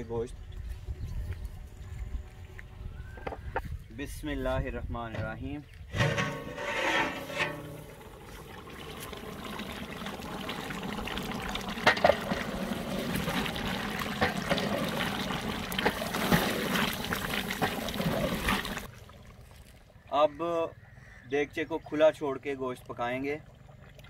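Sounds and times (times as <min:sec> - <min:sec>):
stew simmering and bubbling: 0:05.1 - 0:20.2.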